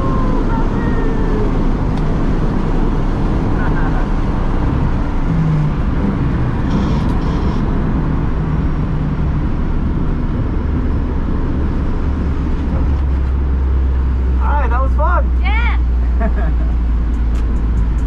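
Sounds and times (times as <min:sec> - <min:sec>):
steady low drone: 0:00.0 - 0:14.4
road and tyre rumble: 0:00.0 - 0:18.0
race car engine running: 0:01.4 - 0:18.0.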